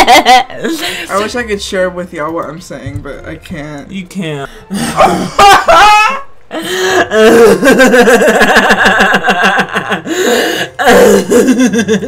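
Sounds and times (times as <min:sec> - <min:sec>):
loud human laughter: 0:05.0 - 0:06.3, 0:07.0 - 0:10.1, 0:11.0 - 0:12.0.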